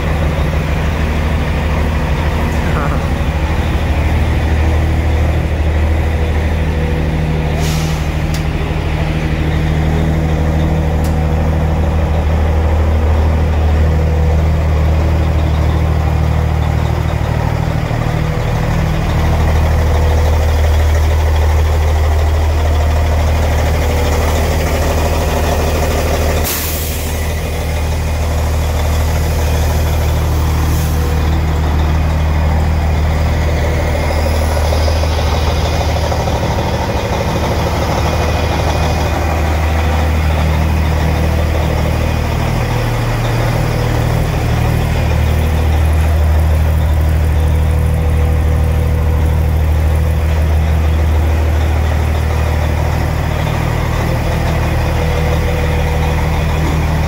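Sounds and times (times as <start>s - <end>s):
diesel truck engine idling: 0.0s - 57.0s
air hissing: 7.5s - 8.4s, 26.4s - 27.3s.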